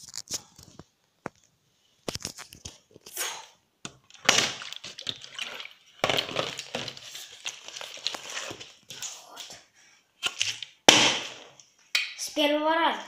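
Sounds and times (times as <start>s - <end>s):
plastic bottle crinkling: 2.0s - 3.2s, 4.0s - 9.5s
water sloshing: 4.2s - 8.6s.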